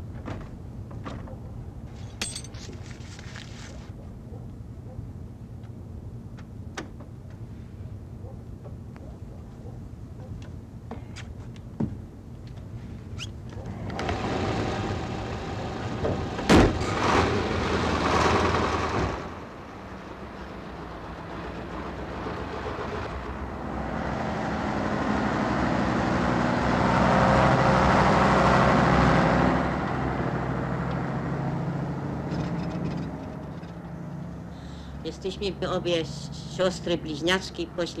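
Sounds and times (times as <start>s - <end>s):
heavy vehicle engine running: 12.0s - 38.0s.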